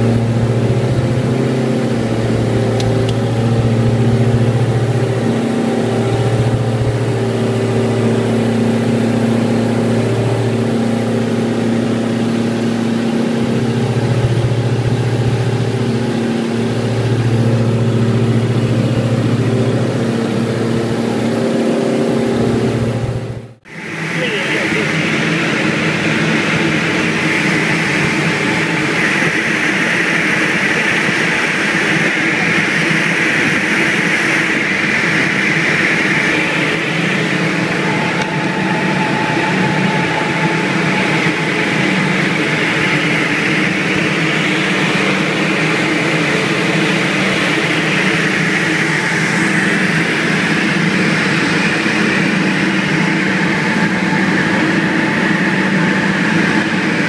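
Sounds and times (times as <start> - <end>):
aircraft engines droning in cockpit: 0.0 - 57.0.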